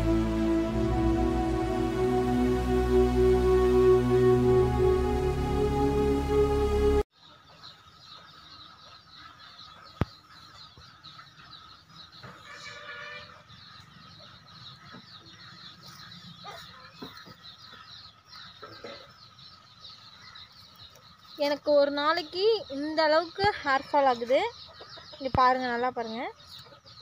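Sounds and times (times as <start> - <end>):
small birds chirping: 7.2 - 27.0.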